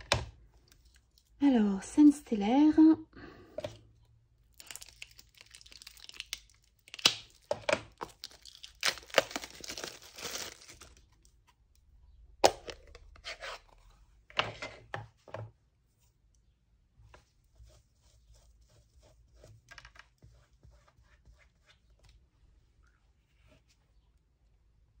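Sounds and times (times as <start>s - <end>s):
plastic wrap crackling: 4.5s - 11.3s.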